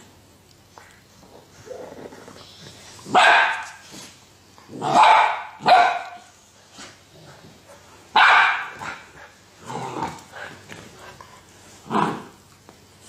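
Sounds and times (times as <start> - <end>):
dog barking: 3.1 - 3.8, 4.8 - 6.3, 8.1 - 9.0.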